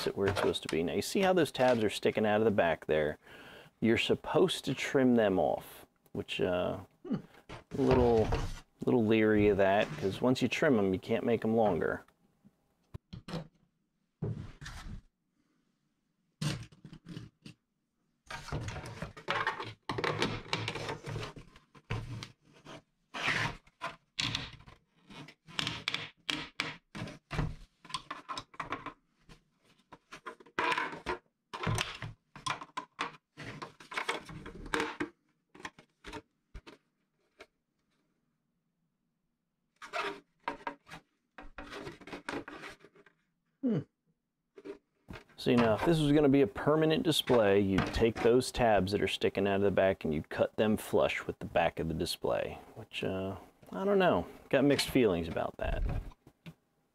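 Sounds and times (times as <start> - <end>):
plastic parts clicking and scraping: 29.6 - 37.5.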